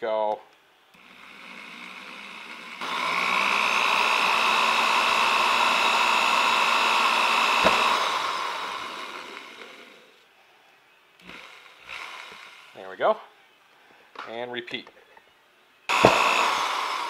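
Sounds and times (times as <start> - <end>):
electric drill motor whine: 1.0 - 10.2, 11.2 - 12.8, 15.9 - 17.0.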